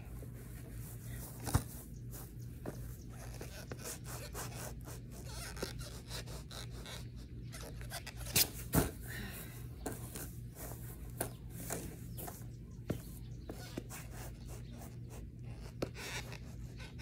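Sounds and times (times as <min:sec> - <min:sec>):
steady low hum: 0:00.0 - 0:17.0
skateboard knocking and scraping on grass: 0:00.1 - 0:04.8, 0:07.8 - 0:09.1, 0:09.8 - 0:15.0.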